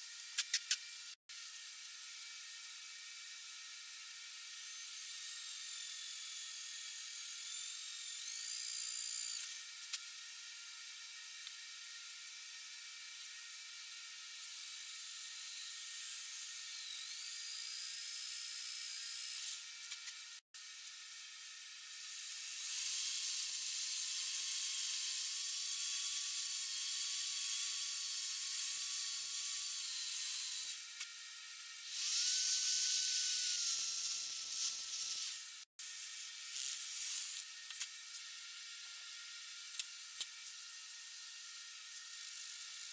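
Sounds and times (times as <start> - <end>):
electric drill whining: 4.4 - 9.7, 14.4 - 19.8, 21.9 - 31.0, 31.8 - 37.6.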